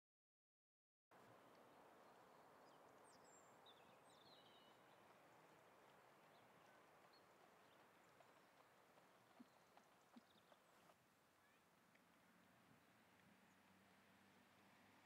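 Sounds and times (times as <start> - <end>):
faint outdoor hiss: 1.1 - 15.0.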